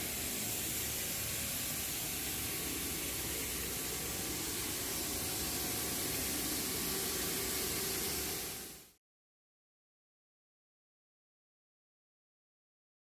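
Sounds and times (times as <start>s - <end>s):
steady background hiss: 0.0s - 9.0s.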